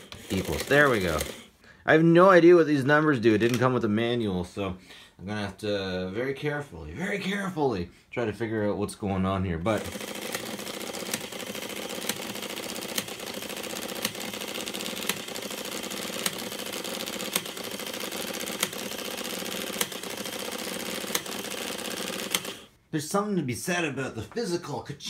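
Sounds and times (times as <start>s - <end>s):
printing calculator chattering: 0.0s - 1.5s, 9.7s - 22.7s
printer clacks: 9.8s - 22.6s.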